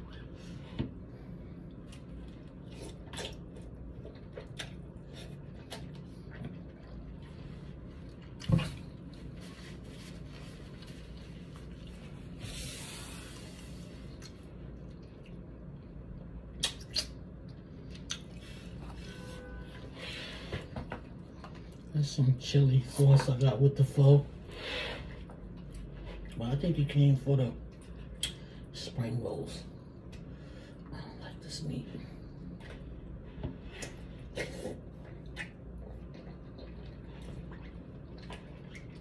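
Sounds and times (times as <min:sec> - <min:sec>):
low steady hum: 0:00.0 - 0:39.0.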